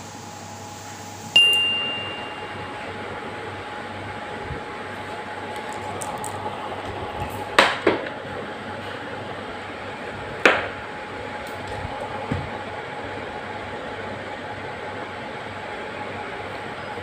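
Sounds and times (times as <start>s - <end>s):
steady background hum: 0.0s - 17.0s
plastic stick clattering on tiled floor: 5.5s - 8.1s.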